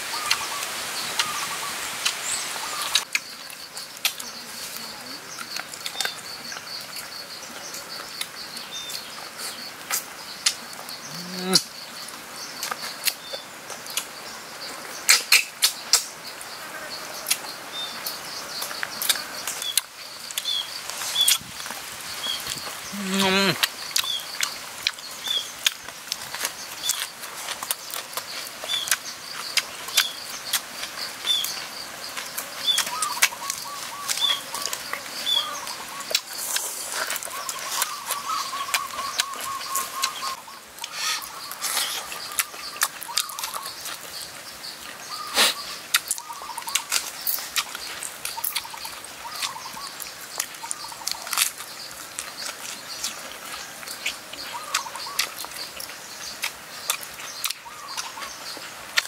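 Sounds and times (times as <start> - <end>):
man chewing and lip-smacking: 9.8 - 11.7, 25.6 - 31.4, 36.0 - 45.0, 45.9 - 59.0
bird chirping: 17.1 - 58.8.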